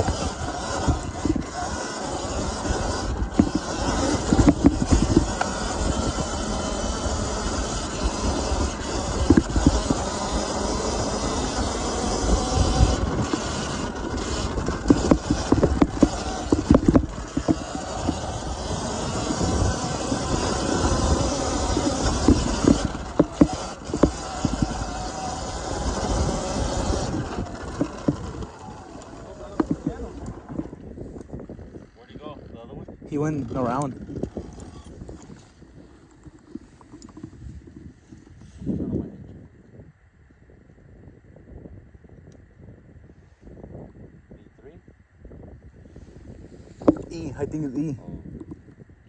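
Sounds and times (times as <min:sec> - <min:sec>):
bike thumping over bumps: 0:00.0 - 0:30.8
tyre noise on loose dirt: 0:00.0 - 0:32.1, 0:33.1 - 0:39.0
wind rush: 0:00.0 - 0:49.0.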